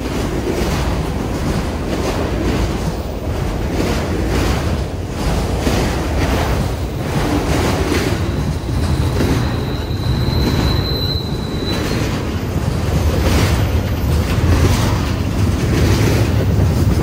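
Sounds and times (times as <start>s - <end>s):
train wheels rumbling and clacking: 0.0s - 17.0s
high wheel squeal: 8.0s - 12.8s.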